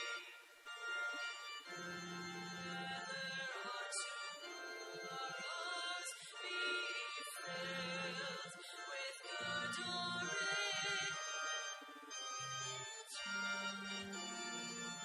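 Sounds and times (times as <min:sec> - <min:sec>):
voices singing with vibrato: 0:02.0 - 0:13.8.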